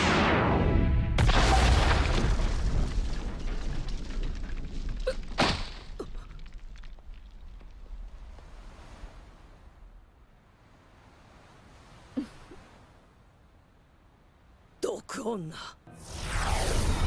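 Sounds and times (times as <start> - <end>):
loud crash boom: 0.0 - 3.6.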